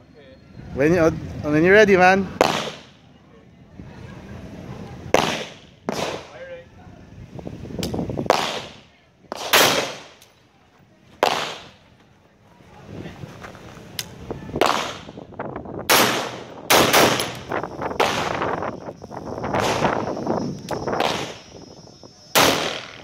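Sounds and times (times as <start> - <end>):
rifle shots with echo: 2.4 - 2.9, 5.2 - 6.4, 8.3 - 10.2, 11.2 - 11.8, 14.6 - 15.1, 15.9 - 18.5, 21.0 - 21.4, 22.4 - 23.0.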